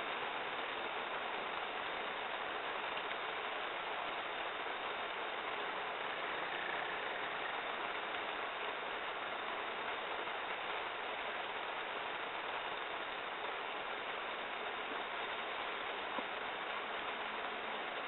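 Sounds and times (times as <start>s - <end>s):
heavy rain on wet road: 0.0s - 18.0s.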